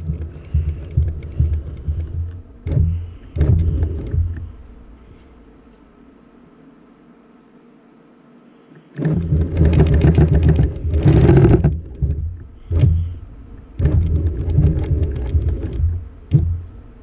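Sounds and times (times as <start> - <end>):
quilting machine stitching: 0.0 - 4.4, 9.0 - 16.5.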